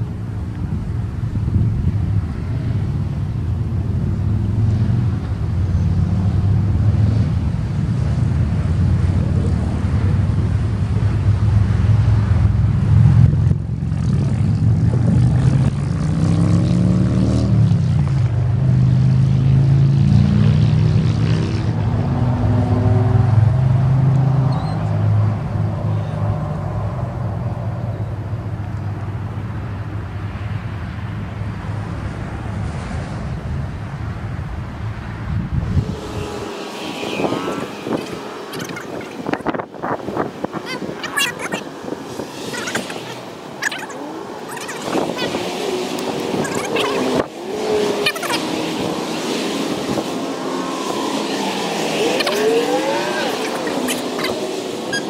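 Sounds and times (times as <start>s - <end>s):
siren higher tones sweep: 35.7s - 39.7s, 47.9s - 55.0s
siren winding down: 50.5s - 55.0s.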